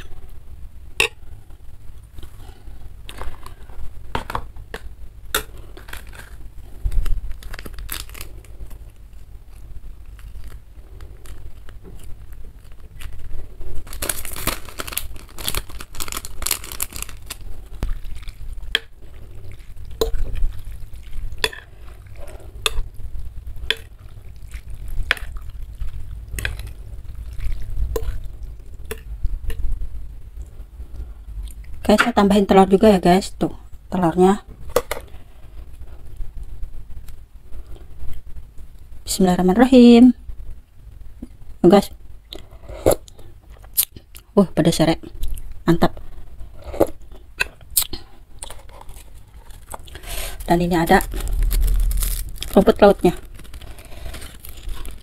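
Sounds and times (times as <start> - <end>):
plastic sachet crinkling and tearing: 5.8 - 18.6, 48.4 - 55.0
soupy noodles being stirred: 7.6 - 31.0.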